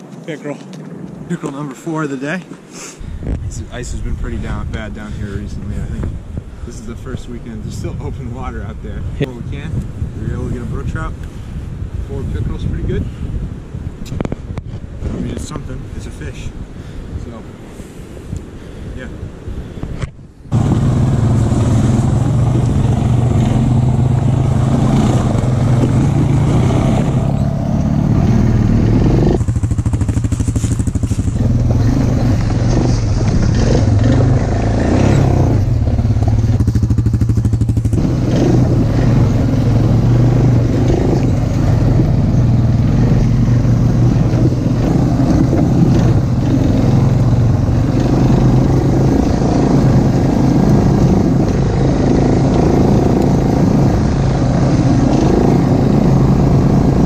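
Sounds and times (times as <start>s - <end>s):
atv engine running: 20.5s - 57.0s
rattle from bumps: 29.4s - 38.8s.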